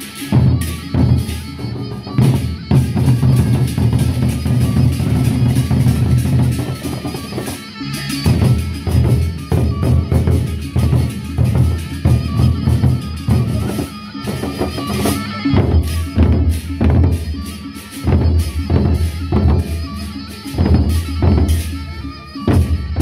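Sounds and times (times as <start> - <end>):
cymbals clashing: 0.0 - 23.0
barrel drums beaten with sticks: 15.6 - 19.9.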